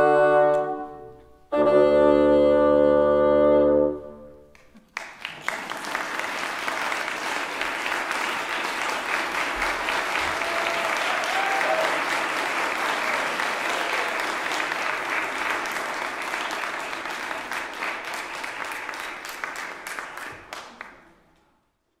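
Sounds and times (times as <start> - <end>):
audience applauding: 4.6 - 21.1.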